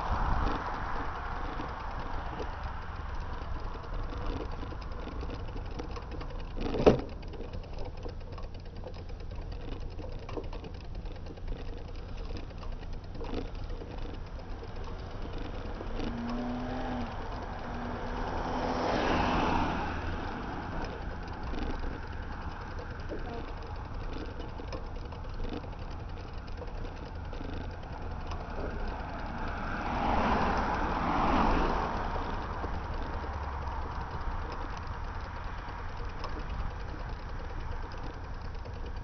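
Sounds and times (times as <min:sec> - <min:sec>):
road rumble: 0:00.0 - 0:39.0
wind: 0:00.0 - 0:39.0
car passing: 0:13.8 - 0:24.2, 0:27.4 - 0:38.2.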